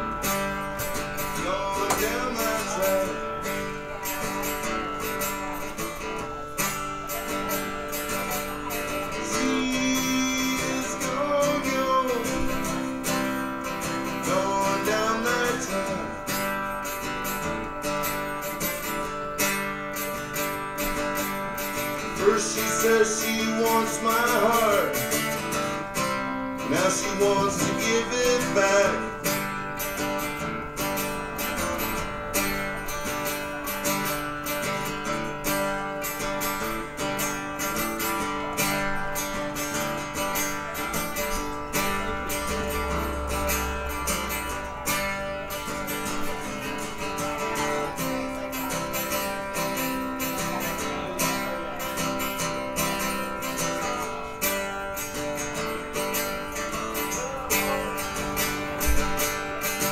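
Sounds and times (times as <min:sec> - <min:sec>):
strummed guitar: 0:00.0 - 0:59.9
person singing: 0:00.9 - 0:04.2, 0:08.0 - 0:16.4, 0:21.8 - 0:25.5, 0:26.6 - 0:29.4.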